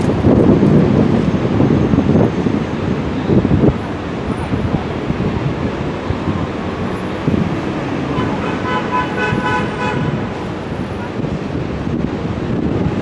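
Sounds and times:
street traffic: 0.0s - 13.0s
wind rumbling on microphone: 0.0s - 13.0s.

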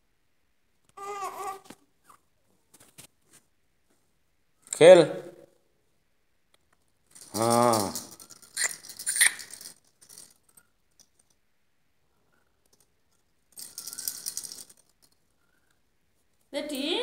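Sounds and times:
plastic baby rattle shaken: 7.1s - 11.3s, 13.5s - 15.2s.

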